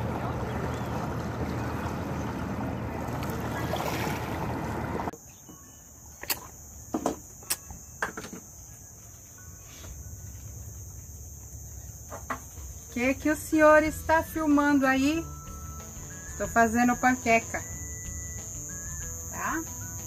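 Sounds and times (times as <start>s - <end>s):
small waves lapping: 0.0s - 5.1s.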